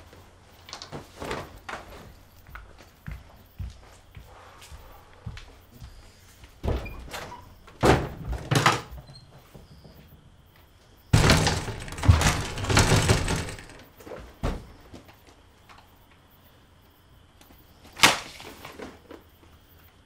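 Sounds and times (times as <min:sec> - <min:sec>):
thuds against a wooden door: 0:11.1 - 0:13.8.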